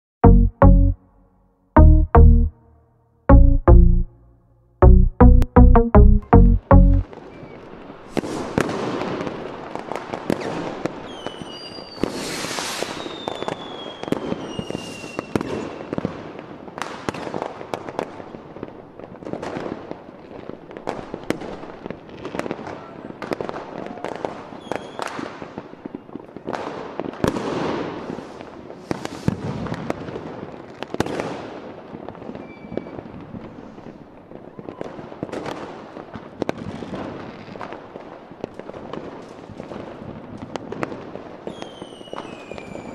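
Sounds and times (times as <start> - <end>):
firework whistles falling in pitch: 10.4 - 15.8, 41.5 - 42.9.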